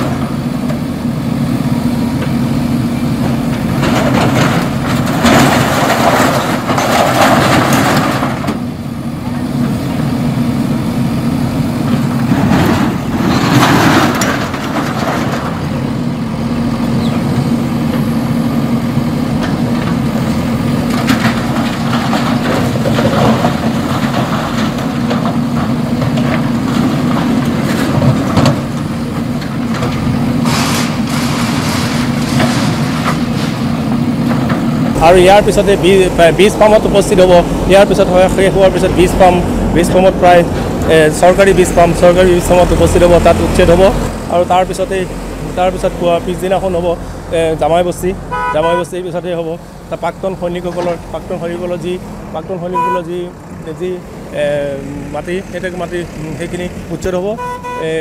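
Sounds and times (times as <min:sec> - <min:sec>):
diesel engine running: 0:00.0 - 0:58.0
metal structures being torn down: 0:03.8 - 0:08.6, 0:12.2 - 0:15.8, 0:20.9 - 0:28.8, 0:29.4 - 0:39.4.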